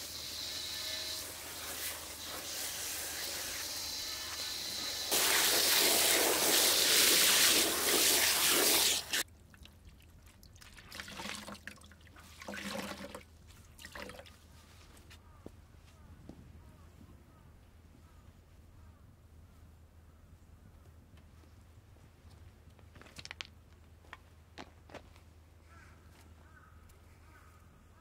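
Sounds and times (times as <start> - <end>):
water pouring into metal bowl: 4.7 - 9.2.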